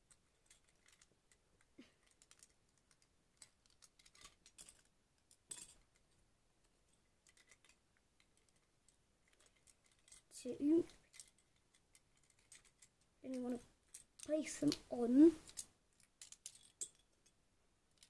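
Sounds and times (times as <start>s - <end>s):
plastic bricks clicking and clattering: 2.0s - 6.1s, 15.4s - 17.1s.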